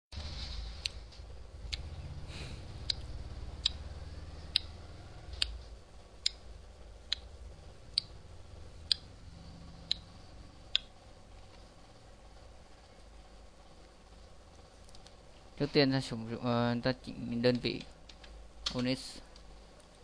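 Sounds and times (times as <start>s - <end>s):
low hum: 0.1s - 20.0s
sharp clicks: 4.5s - 5.6s.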